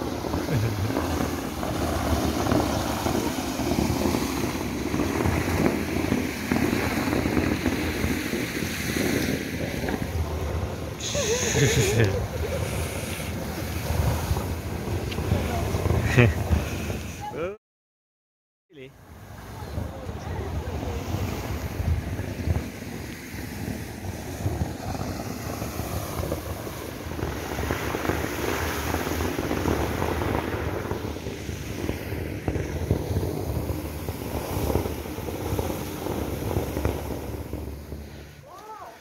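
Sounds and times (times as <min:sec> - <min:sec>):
wind rumbling on microphone: 0:00.0 - 0:17.6, 0:19.0 - 0:39.0
steam vent hissing: 0:11.0 - 0:14.4.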